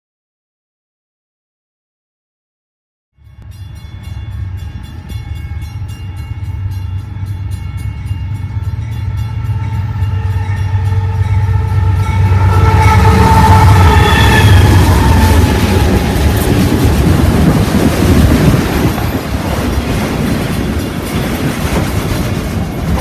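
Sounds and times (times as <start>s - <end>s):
diesel locomotive engines rumbling: 3.3s - 23.0s
train air horn: 8.6s - 16.5s.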